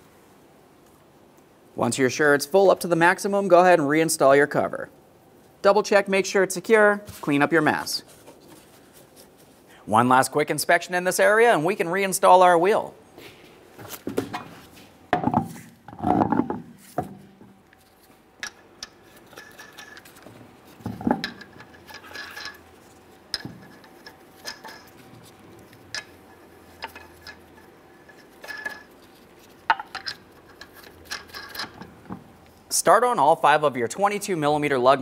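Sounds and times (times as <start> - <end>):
metal clinks of wheel and lug nuts: 18.4 - 32.2.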